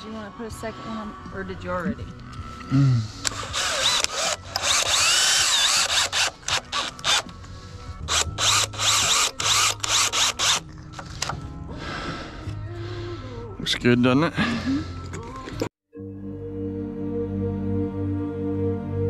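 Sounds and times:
power drill driving screws: 3.2 - 7.3, 8.1 - 11.3.

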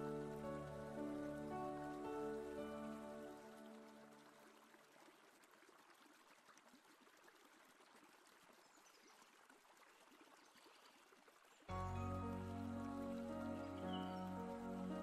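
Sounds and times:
music: 0.0 - 4.0, 11.7 - 15.0
faint trickling water: 0.0 - 15.0.

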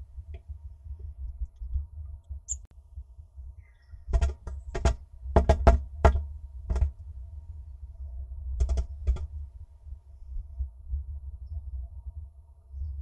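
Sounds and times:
steady low rumble: 0.0 - 13.0
bird tapping on wood: 4.1 - 6.9, 8.6 - 9.3.

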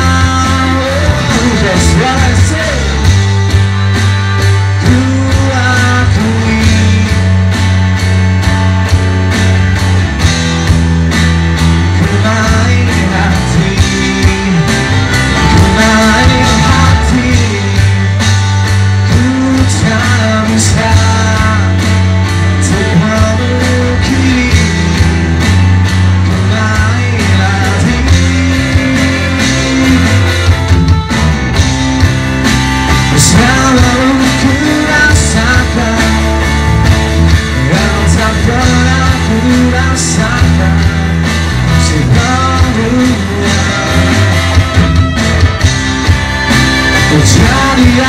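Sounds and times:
man singing pop song: 0.0 - 3.1, 4.8 - 7.4, 12.0 - 18.2, 19.0 - 21.9, 22.6 - 25.2, 26.2 - 30.3, 33.0 - 36.4, 37.5 - 44.7, 47.1 - 48.0
bass line: 0.0 - 48.0
drums: 0.0 - 48.0
electric guitar: 0.0 - 48.0.

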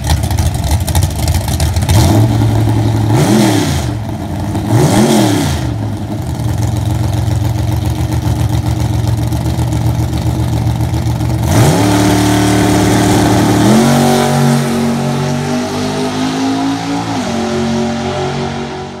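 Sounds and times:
drag truck engine revving: 0.0 - 7.9, 10.1 - 19.0.

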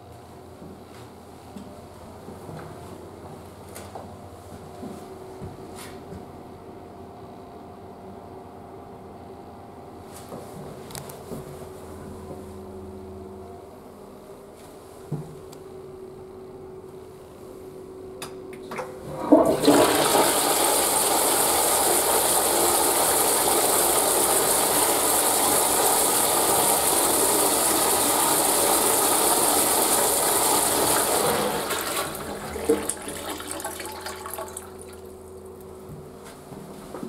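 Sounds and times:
toilet flushing: 18.6 - 35.5.

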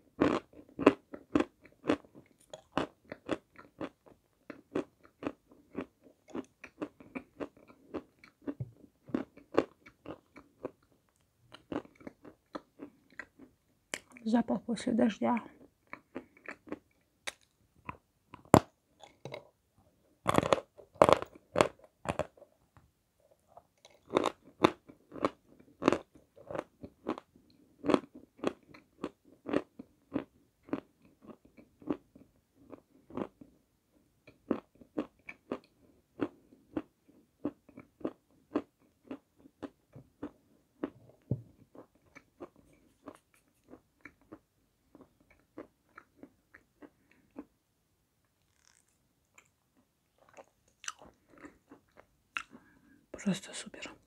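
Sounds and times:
crunchy chalk chewing: 41.7 - 47.5, 48.4 - 49.5.

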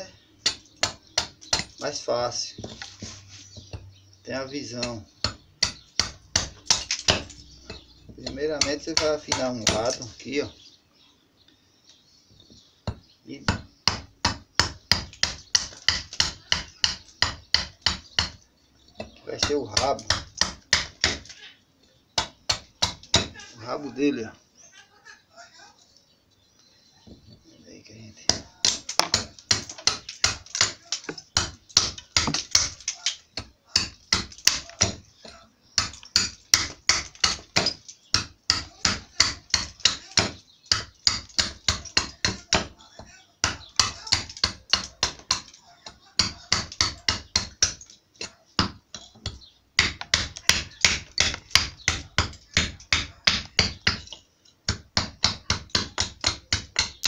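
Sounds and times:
hatchet chopping wood: 0.4 - 1.9, 4.7 - 10.1, 12.8 - 18.4, 19.0 - 21.4, 22.2 - 23.5, 28.3 - 57.0.

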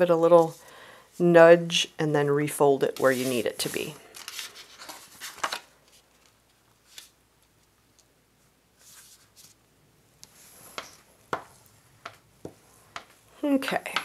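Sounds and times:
paper rustling: 3.0 - 7.8, 8.8 - 9.6.

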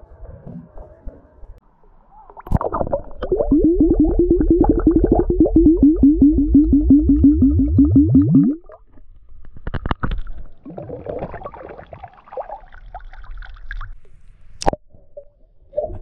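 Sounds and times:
water pouring and gurgling: 2.4 - 14.0.

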